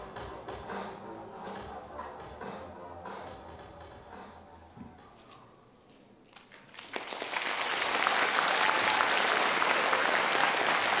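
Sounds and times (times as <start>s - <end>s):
audience applause: 6.6s - 11.0s.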